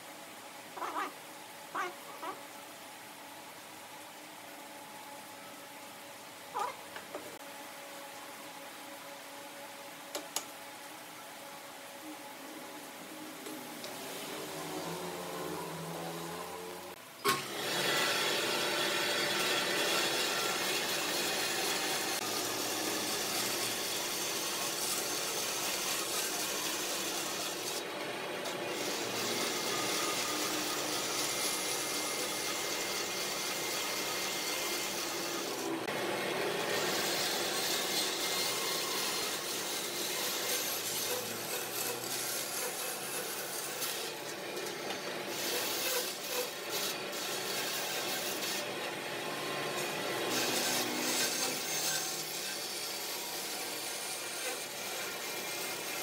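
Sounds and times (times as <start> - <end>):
tool cutting wood: 13.4 - 56.0.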